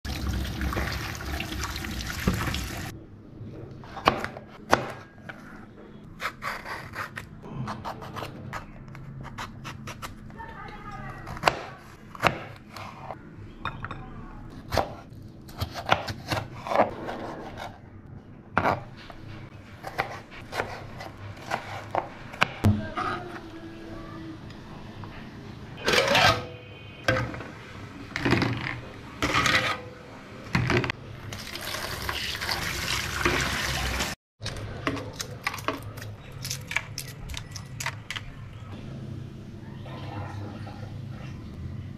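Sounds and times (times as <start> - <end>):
tap water running: 0.0 - 2.9, 31.3 - 34.2.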